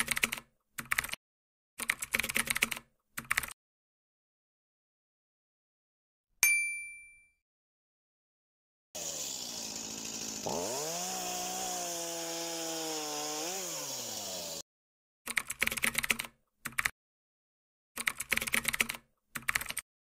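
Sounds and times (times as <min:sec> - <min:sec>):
keyboard typing clicks: 0:00.0 - 0:01.2, 0:01.8 - 0:03.6, 0:15.3 - 0:16.9, 0:18.0 - 0:19.8
chainsaw engine revving: 0:09.0 - 0:14.6.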